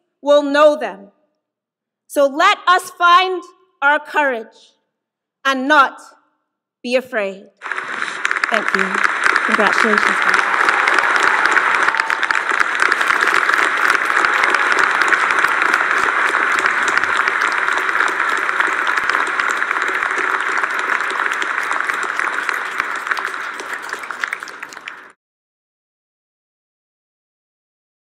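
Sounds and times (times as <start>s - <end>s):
large audience applauding: 7.6s - 25.2s.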